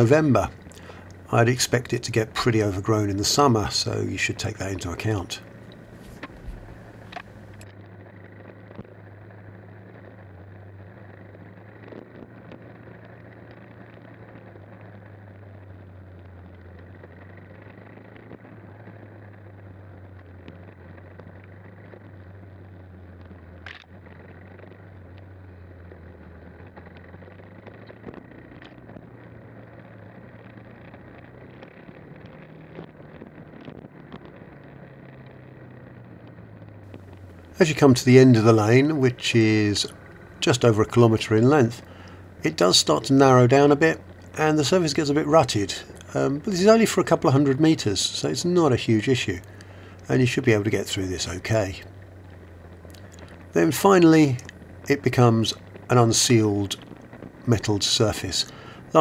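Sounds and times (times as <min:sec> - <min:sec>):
motorcycle engine running: 0:00.0 - 0:48.6, 0:49.2 - 0:59.0.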